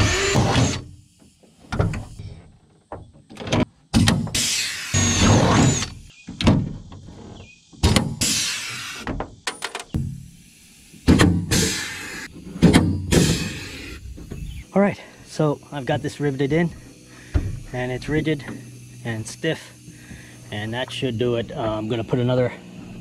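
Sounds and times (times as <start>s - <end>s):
cordless drill drilling aluminum: 0.0s - 1.0s, 4.2s - 6.1s, 8.1s - 9.0s, 10.3s - 14.7s.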